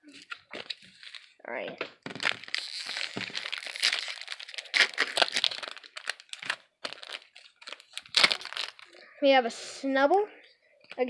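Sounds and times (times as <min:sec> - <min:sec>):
foil wrapper crinkling: 0:02.1 - 0:09.0.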